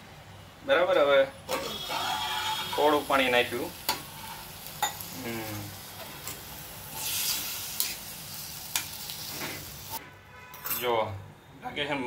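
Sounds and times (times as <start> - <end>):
curry sizzling in a pan: 1.5 - 10.0
spatula stirring and scraping: 1.6 - 3.0, 3.9 - 5.1.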